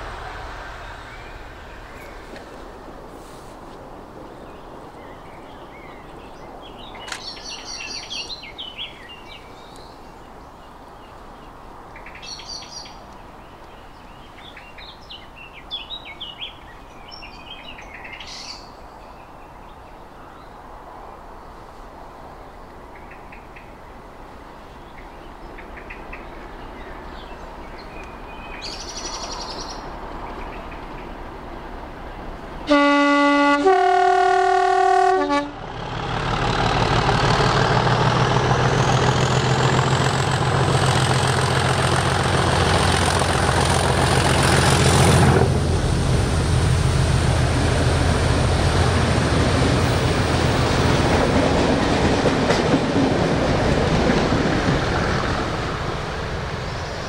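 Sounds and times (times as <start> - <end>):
diesel locomotive passing: 0.0 - 57.0
two-tone train horn: 32.6 - 35.7.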